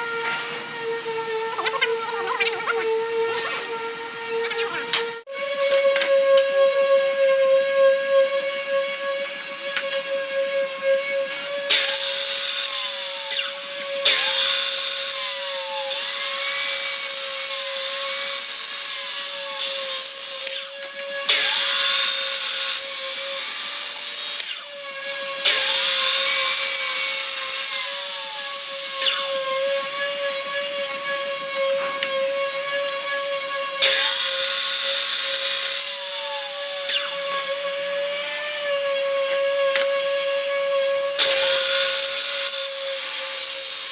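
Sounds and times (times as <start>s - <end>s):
miter saw cutting wood: 0.0s - 43.9s.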